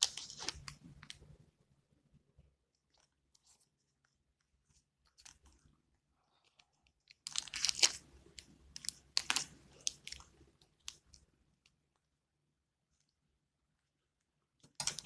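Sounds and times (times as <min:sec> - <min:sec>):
adhesive tape crinkling: 0:00.0 - 0:01.2, 0:07.2 - 0:11.2.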